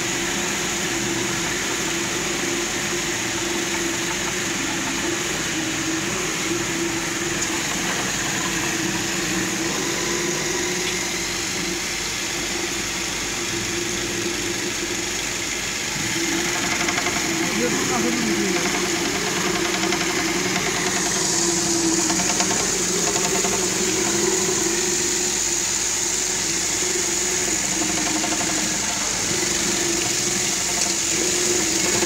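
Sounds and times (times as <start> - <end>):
slicing machine motor hum: 0.0 - 32.0.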